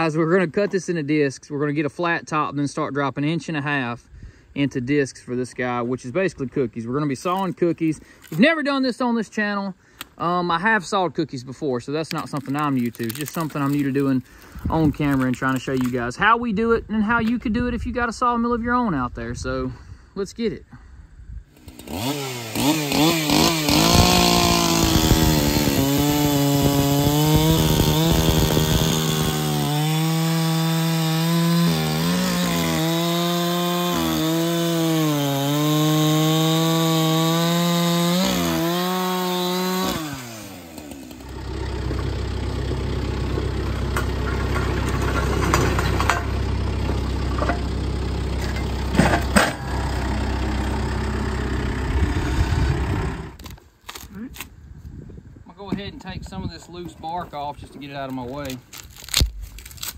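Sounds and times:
chainsaw cutting log: 21.5 - 54.5, 58.4 - 59.9
tractor diesel engine running: 40.1 - 53.4.

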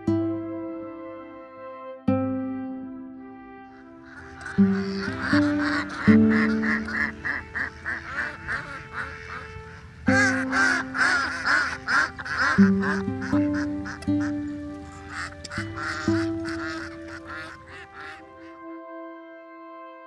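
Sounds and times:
music of long low notes: 0.0 - 20.0
ducks quacking: 3.7 - 18.7.

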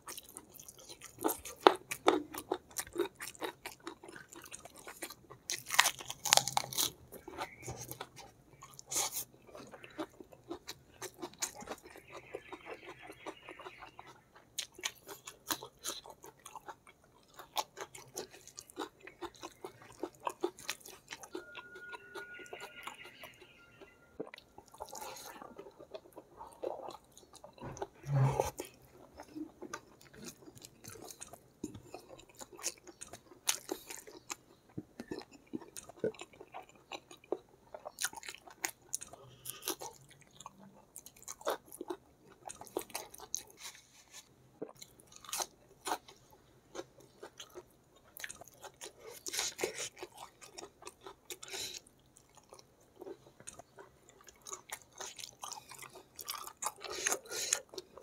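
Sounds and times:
person chewing and smacking: 0.0 - 58.0.

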